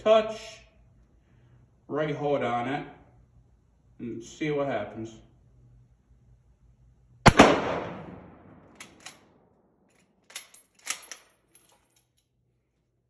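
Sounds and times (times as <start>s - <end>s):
rifle shot: 7.2s - 9.4s
rifle bolt metallic clacks: 8.7s - 9.3s, 9.9s - 12.2s.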